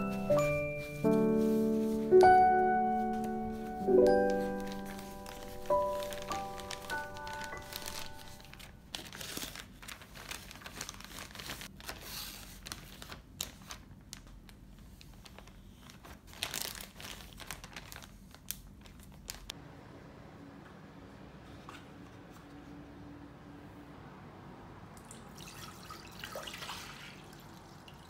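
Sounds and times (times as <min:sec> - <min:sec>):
plastic bag crinkling: 0:00.0 - 0:19.6.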